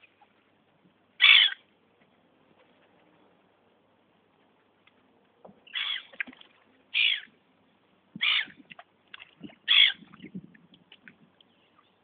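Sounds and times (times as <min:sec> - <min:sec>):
gulls calling: 0:01.2 - 0:01.6, 0:05.7 - 0:06.3, 0:06.9 - 0:07.3, 0:08.2 - 0:08.7, 0:09.6 - 0:10.1.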